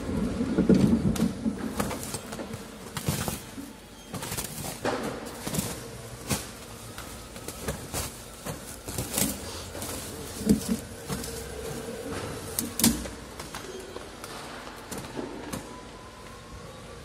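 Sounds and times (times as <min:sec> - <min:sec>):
plastic sheet rustling: 0:00.7 - 0:15.5.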